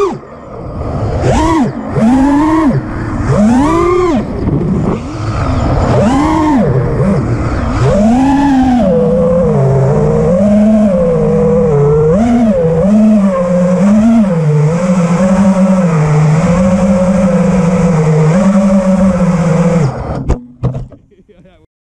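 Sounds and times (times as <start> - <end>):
drone motors whining: 0.0 - 20.9
knocks: 20.3 - 21.0.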